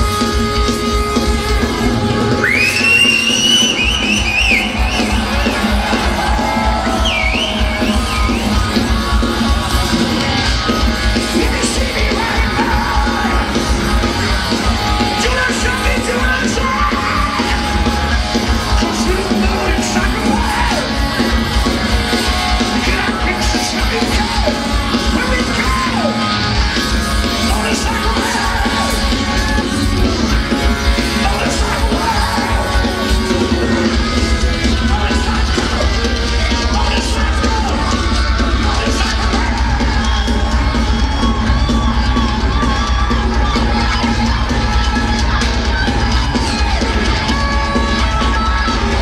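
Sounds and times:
distorted electric guitars: 0.0s - 49.0s
drums and bass: 0.0s - 49.0s
singer's vocal: 1.1s - 49.0s.

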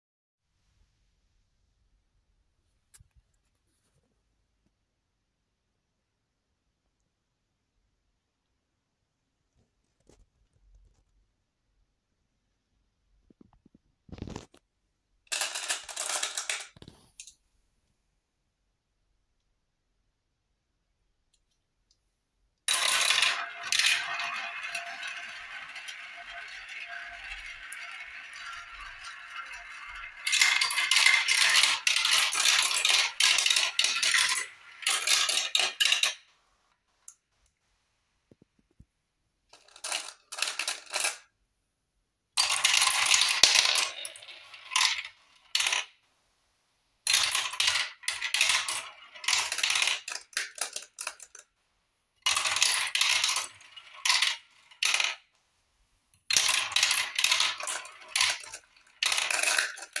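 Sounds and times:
glass marbles rolling and clattering: 14.1s - 14.5s, 15.3s - 17.0s, 22.7s - 36.3s, 42.4s - 45.9s, 47.0s - 51.5s, 52.2s - 55.3s, 56.2s - 60.0s.

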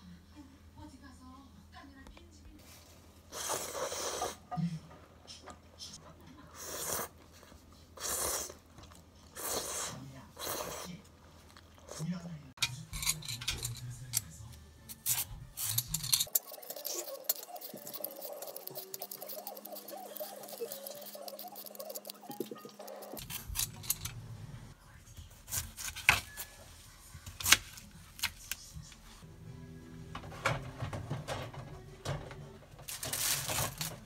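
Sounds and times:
peeler scraping melon skin: 14.9s - 24.1s, 25.5s - 26.5s
knife cutting melon: 16.3s - 23.8s, 25.5s - 26.5s.

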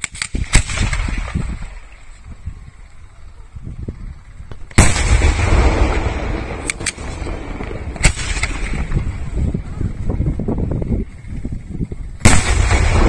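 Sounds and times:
sharp firework cracks: 0.0s - 2.4s, 4.4s - 9.4s, 12.2s - 13.0s
firework bang with low rumble: 4.4s - 10.5s, 12.2s - 13.0s.

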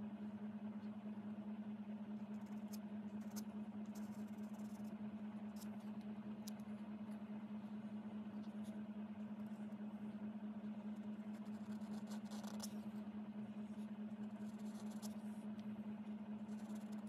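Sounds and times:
steady low hum: 0.0s - 17.0s
pen scratching on paper: 2.2s - 4.9s, 10.8s - 13.0s, 13.7s - 15.3s, 16.4s - 17.0s.

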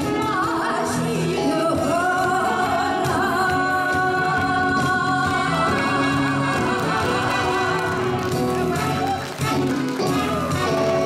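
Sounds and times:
woman singing into a microphone: 0.0s - 8.1s
band accompaniment: 0.0s - 11.0s.

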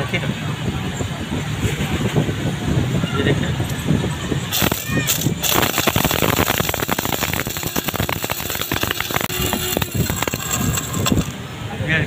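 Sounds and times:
spice grinder rattling: 4.5s - 11.4s.

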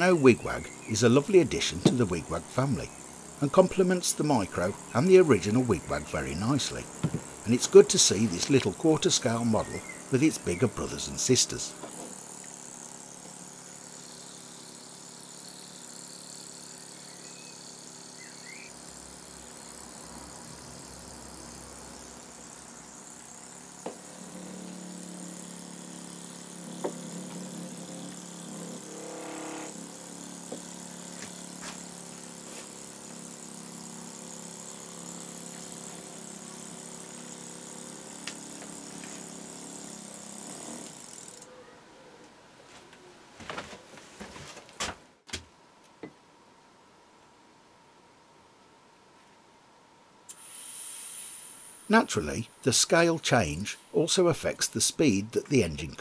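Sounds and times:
compressed air hissing: 0.0s - 39.8s, 50.3s - 52.9s.

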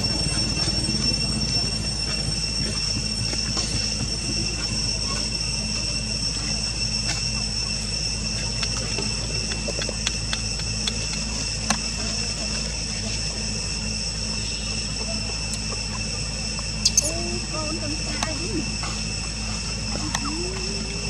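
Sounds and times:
insects droning: 0.0s - 21.0s.

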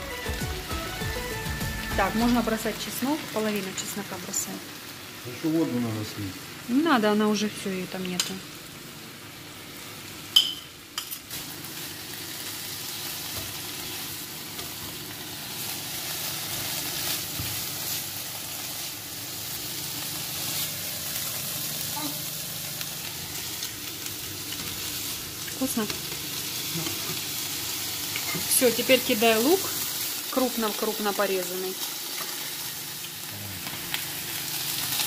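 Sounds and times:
meat frying in a pan: 0.0s - 35.0s.

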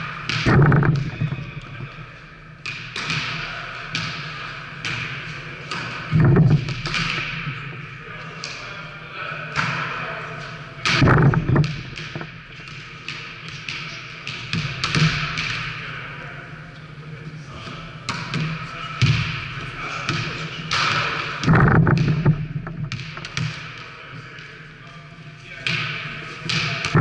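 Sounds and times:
volleyball thuds on wooden floor: 0.3s - 2.0s, 6.2s - 7.4s, 10.9s - 12.4s, 21.4s - 23.5s
indistinct voices: 0.4s - 2.4s, 5.4s - 12.6s.

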